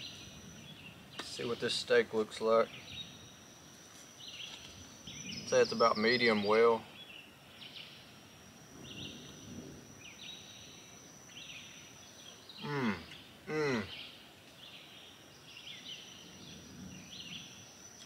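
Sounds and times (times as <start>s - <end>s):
thin high-pitched whine: 0.0s - 13.3s.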